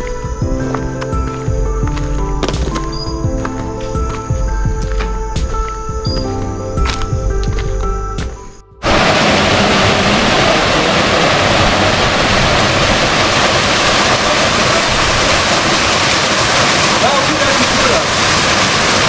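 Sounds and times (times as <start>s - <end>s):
waterfall pouring into pool: 8.8s - 19.0s.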